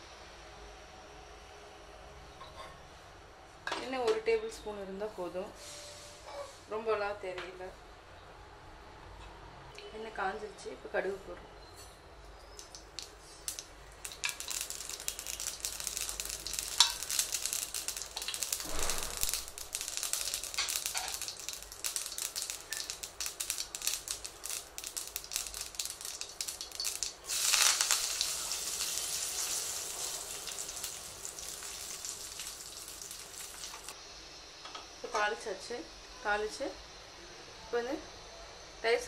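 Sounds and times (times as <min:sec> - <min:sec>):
mustard seeds popping in oil: 0:12.5 - 0:34.0
leaves sizzling in oil: 0:12.5 - 0:34.4.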